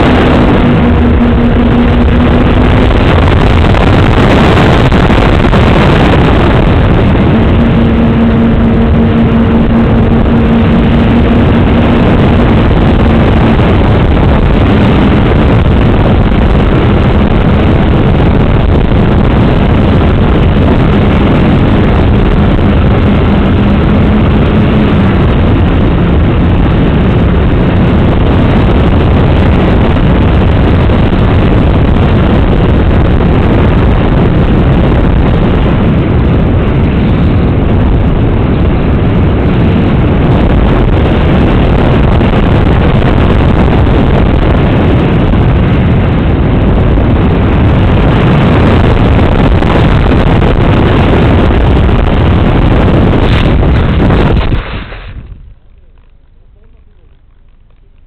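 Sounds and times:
wind rush: 0.0 - 58.0
model aeroplane motor and propeller: 54.9 - 58.0.

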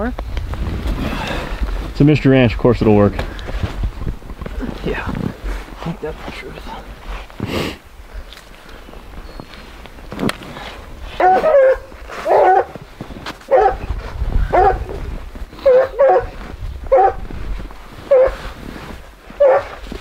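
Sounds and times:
dog barking: 11.2 - 12.8, 13.5 - 13.9, 14.5 - 15.0, 15.6 - 17.2, 18.1 - 18.4, 19.4 - 19.8.

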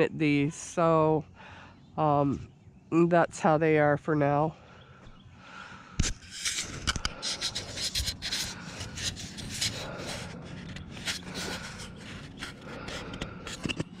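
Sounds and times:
hands handling camera: 6.0 - 14.0.

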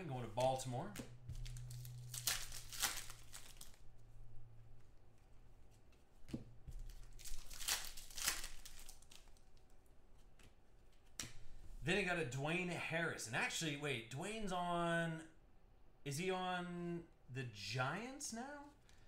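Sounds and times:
foil wrapper crinkling and tearing: 1.3 - 3.8, 6.8 - 9.7.

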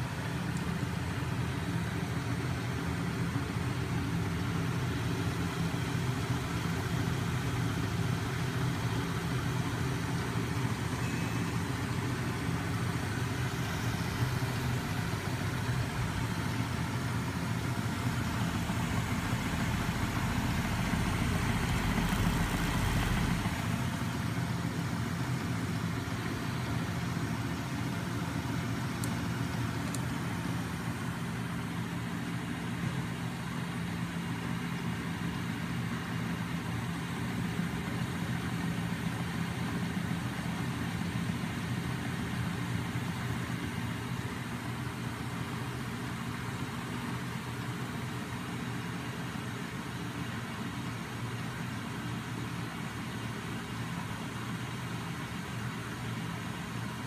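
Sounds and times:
electric motor hum and whir: 4.8 - 31.6.

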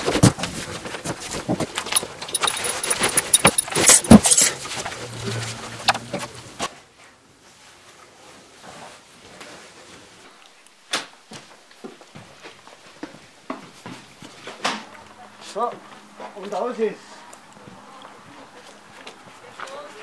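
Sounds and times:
clothes rustling: 0.5 - 6.7
belt buckle jingling and clicking: 1.9 - 4.5.

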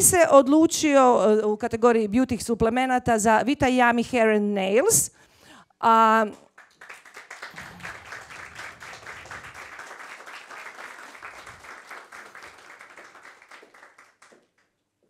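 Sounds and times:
audience applauding: 6.4 - 14.7.

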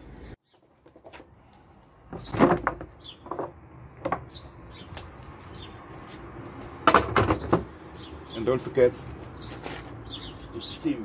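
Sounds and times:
birds chirping: 1.5 - 11.0
wooden frames knocking: 2.1 - 4.4, 6.8 - 7.7.

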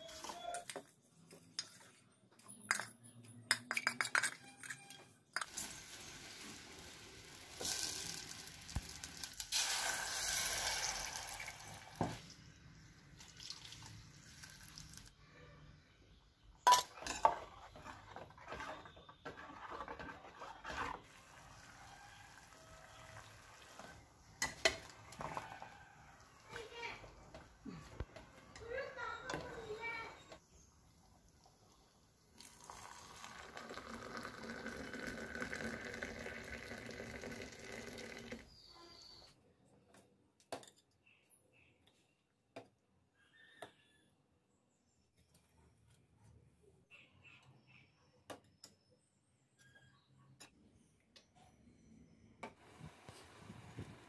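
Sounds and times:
thick paste pouring into a pot: 5.5 - 12.1, 32.4 - 38.4
pots and utensils clinking: 16.6 - 21.0, 24.4 - 25.7.

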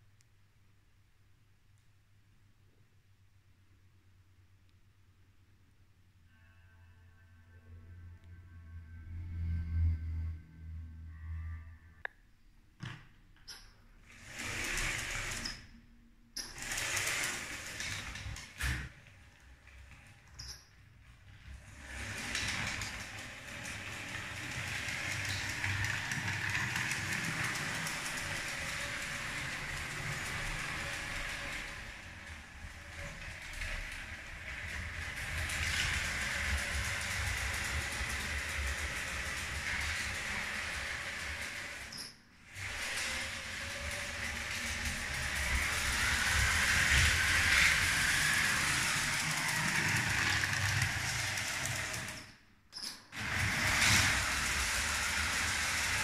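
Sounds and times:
small wheels clicking over track: 13.5 - 15.7, 16.4 - 20.7, 21.3 - 56.0
toy train motor whirring: 14.1 - 15.7, 16.4 - 18.9, 21.6 - 52.4, 53.1 - 56.0.

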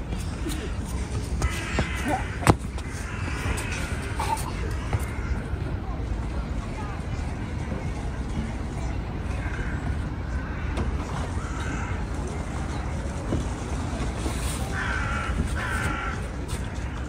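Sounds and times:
crow cawing: 14.8 - 16.2.

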